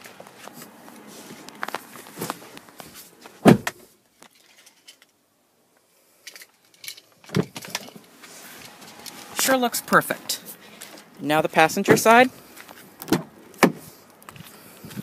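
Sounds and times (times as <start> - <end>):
heavy thump: 3.4 - 3.8
keys rattling: 6.2 - 9.3.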